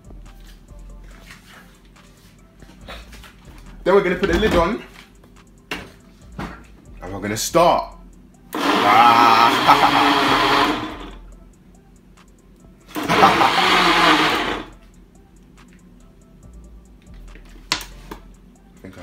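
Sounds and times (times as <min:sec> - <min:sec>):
countertop blender running: 0:08.5 - 0:11.2, 0:12.9 - 0:14.7.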